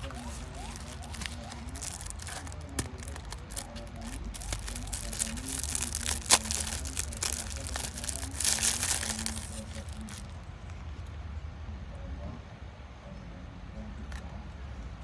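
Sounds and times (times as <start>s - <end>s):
plastic film crinkling: 0.0s - 10.4s.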